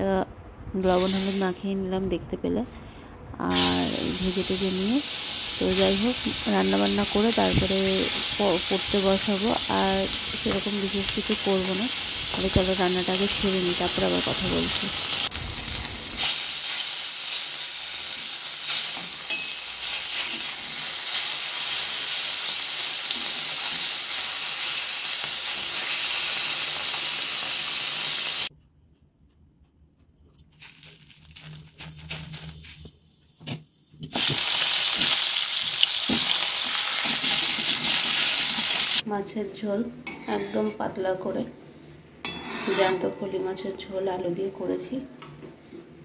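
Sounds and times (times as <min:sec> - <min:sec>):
fish sizzling in hot oil: 0:03.5 - 0:28.5, 0:34.1 - 0:39.0
potatoes sizzling in oil: 0:03.5 - 0:28.5, 0:34.1 - 0:39.0.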